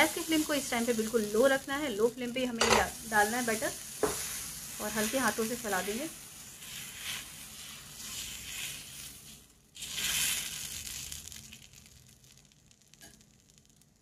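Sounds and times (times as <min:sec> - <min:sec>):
ladle scraping batter in pan: 0:06.4 - 0:11.5.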